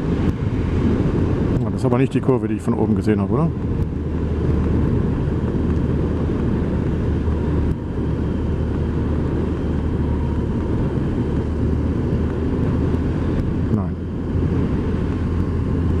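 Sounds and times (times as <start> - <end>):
motorcycle engine riding: 0.0 - 16.0
wind on microphone: 0.0 - 16.0.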